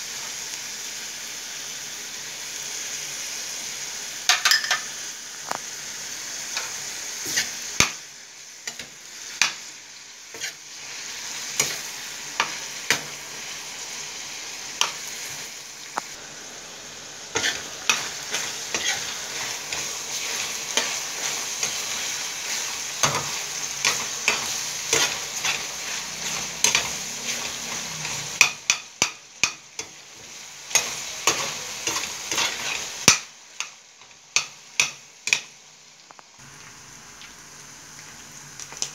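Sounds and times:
meat sizzling in a pan: 0.0 - 38.9
metal spoon scraping a pan: 10.3 - 10.7, 17.4 - 33.7.

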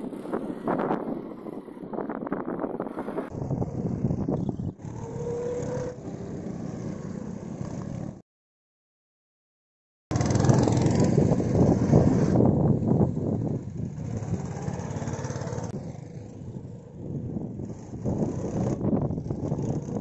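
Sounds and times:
go-kart engines running: 4.8 - 8.2, 10.1 - 20.0.

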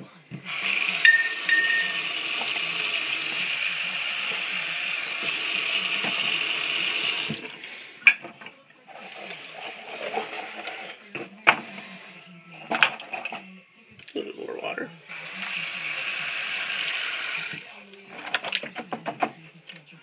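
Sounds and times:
faucet running into plastic pan: 0.5 - 7.6, 15.1 - 18.7
water moving in a pan: 1.0 - 2.5.

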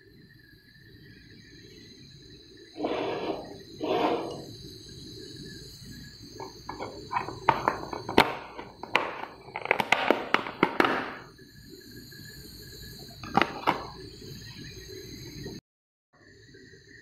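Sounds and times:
faint high whine: 0.0 - 15.6, 16.2 - 17.0
short scrapes: 2.8 - 4.5.

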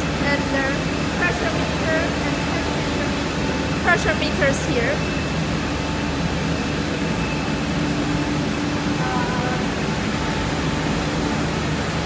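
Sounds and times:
machinery drone: 0.0 - 12.0.

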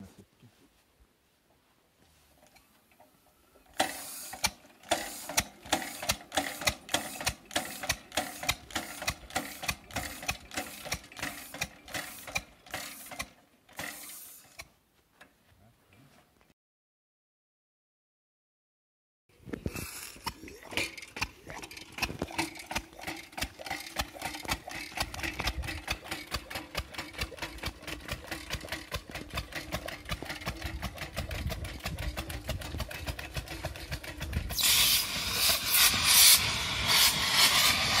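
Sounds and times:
steam engine chuffing: 3.7 - 14.6, 19.8 - 38.0
steam hissing: 3.8 - 13.2, 34.5 - 38.0.

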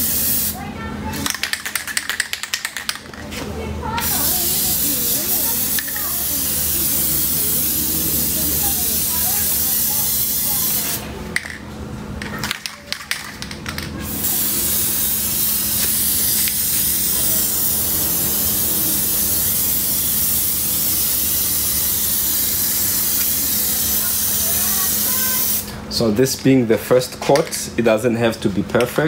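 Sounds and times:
aerosol can spraying: 0.0 - 0.6, 4.0 - 11.0, 14.1 - 25.7.

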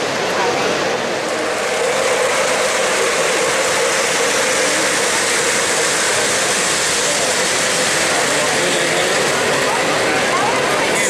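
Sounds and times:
model train wheels rolling on rails: 0.0 - 11.0.

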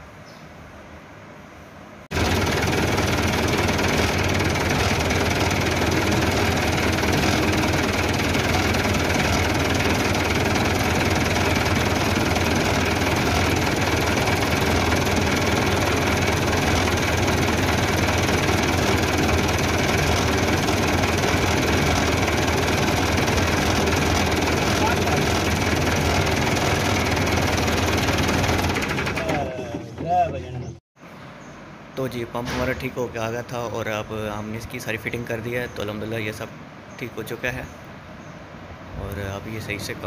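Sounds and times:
engine idling: 2.1 - 29.6.

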